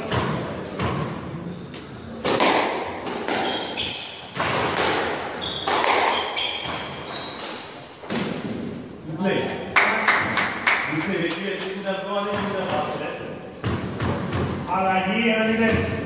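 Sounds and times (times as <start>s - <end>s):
squash ball hitting rackets and walls: 0.0s - 8.9s, 10.2s - 16.0s
shoes squeaking on wooden floor: 3.4s - 4.5s, 5.3s - 8.1s.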